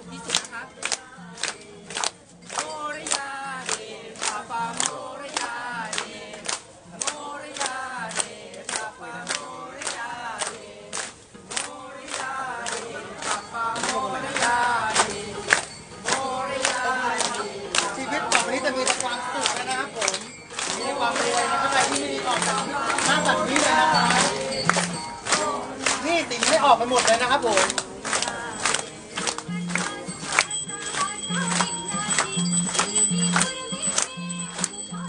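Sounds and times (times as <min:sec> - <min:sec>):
crowd clapping in time: 0:00.0 - 0:35.0
people singing a mantra: 0:00.0 - 0:35.0.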